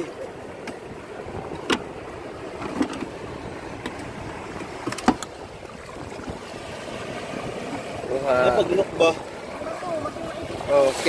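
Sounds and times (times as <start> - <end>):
sea water washing: 0.0 - 11.0
wind: 0.0 - 11.0
short knocks on boat: 1.5 - 1.9, 3.8 - 6.4.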